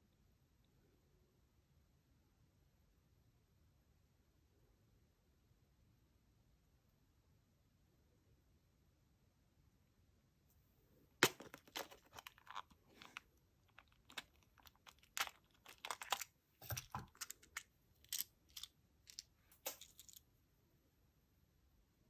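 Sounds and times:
plastic parts clicking and rattling: 11.2s - 20.2s.

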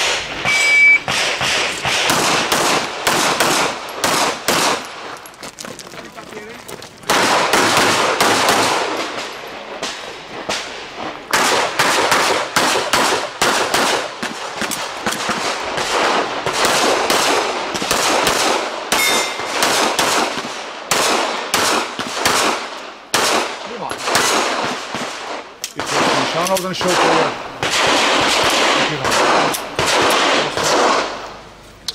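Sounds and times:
pistol shots with echo: 0.0s - 5.0s, 7.1s - 31.4s
metallic clang of steel targets: 18.9s - 19.6s.

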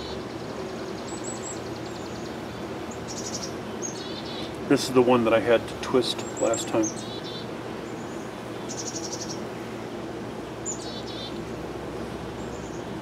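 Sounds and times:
songbird trilling: 0.0s - 4.6s, 5.9s - 9.5s, 10.6s - 11.6s
honeybees humming: 0.0s - 13.0s.

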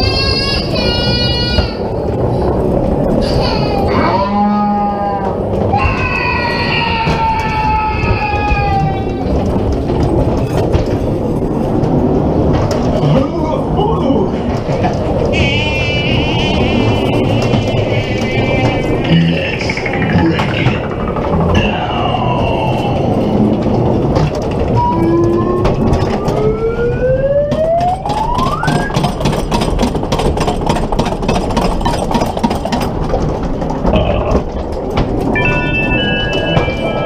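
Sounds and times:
ride car rumbling on track: 0.0s - 37.0s
rising wail: 3.0s - 10.1s, 15.0s - 29.1s
rapid clicking and clatter: 5.2s - 37.0s
siren-like gliding tone: 24.7s - 29.0s.

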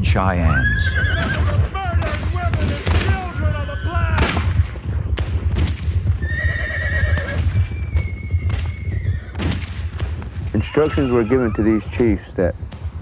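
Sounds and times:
galloping hooves rumble: 0.0s - 13.0s
horses whinnying: 0.3s - 4.4s, 6.2s - 9.6s, 10.4s - 12.2s
gunshots: 1.0s - 6.2s, 8.5s - 11.3s.

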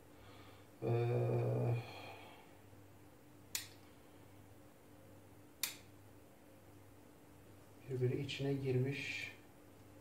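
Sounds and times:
man's voice: 7.9s - 9.4s.

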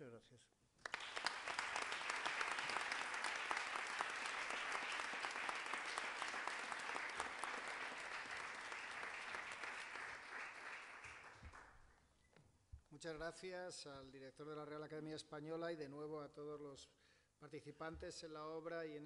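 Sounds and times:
audience applause: 0.8s - 11.8s.

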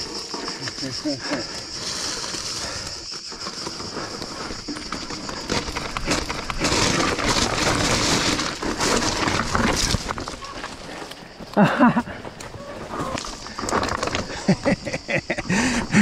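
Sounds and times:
bike chain and frame rattling: 0.0s - 11.0s
bike tyres skidding over loose stone: 0.0s - 11.4s, 12.0s - 16.0s.

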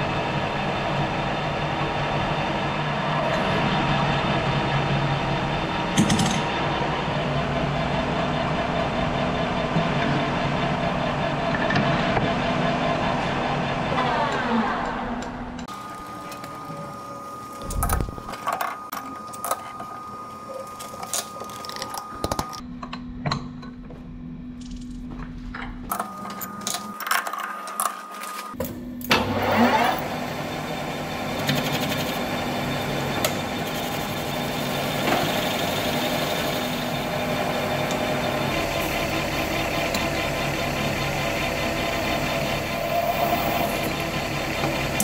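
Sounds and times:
lathe spindle whine: 15.7s - 22.6s, 29.2s - 45.0s.

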